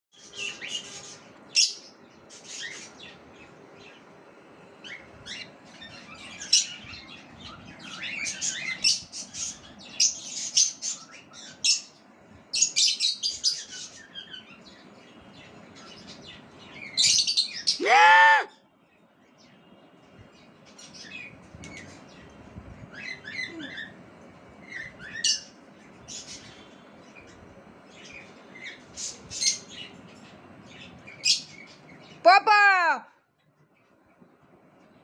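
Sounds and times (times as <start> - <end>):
parrots chirping and screeching: 0.2 - 3.2, 4.8 - 12.0, 22.9 - 24.0, 24.6 - 26.6, 28.0 - 32.2.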